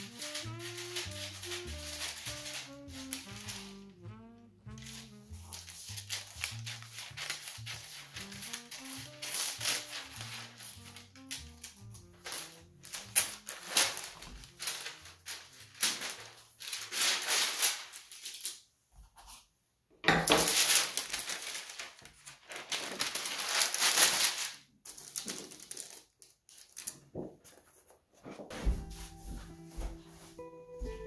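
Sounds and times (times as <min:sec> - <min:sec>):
tracing paper rustling: 0:00.0 - 0:19.5, 0:20.3 - 0:31.0.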